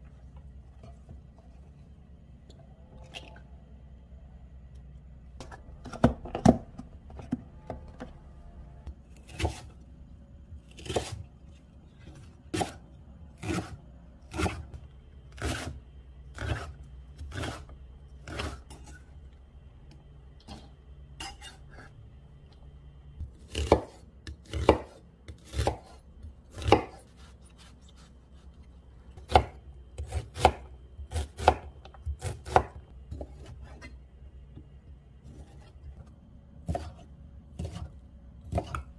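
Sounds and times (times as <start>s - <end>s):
knife chopping on cutting board: 9.3s - 9.7s, 12.1s - 12.8s, 23.4s - 28.1s, 29.2s - 33.9s, 36.6s - 38.8s.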